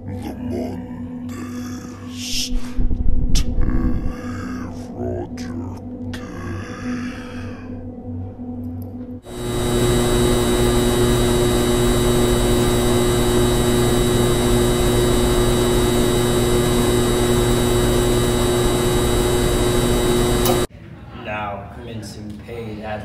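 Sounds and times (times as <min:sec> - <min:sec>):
constant hum: 0:08.0 - 0:20.7
machine whirring: 0:09.2 - 0:20.7.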